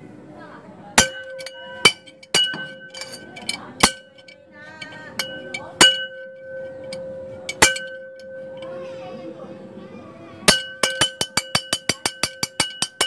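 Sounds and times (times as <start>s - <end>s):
small ringing object clinking: 1.0s - 9.1s.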